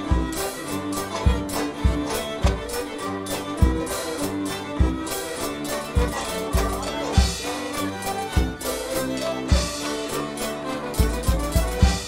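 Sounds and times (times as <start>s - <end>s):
country dance band playing: 0.0s - 12.0s
fiddle: 0.0s - 12.0s
bass drum thuds: 1.3s - 2.9s, 8.3s - 8.7s.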